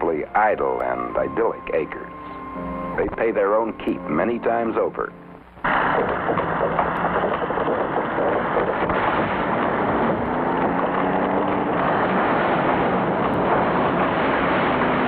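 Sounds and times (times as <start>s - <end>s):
chainsaw engine running: 5.6s - 15.0s.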